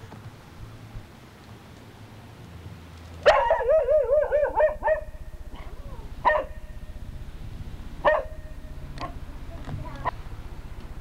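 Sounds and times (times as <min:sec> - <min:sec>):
small dog howling bark: 0:03.2 - 0:06.7, 0:08.0 - 0:09.2.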